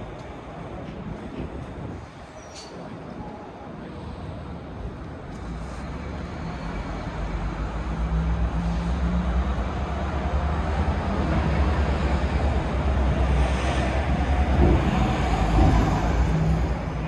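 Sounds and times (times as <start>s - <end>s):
city street noise: 0.0s - 17.0s.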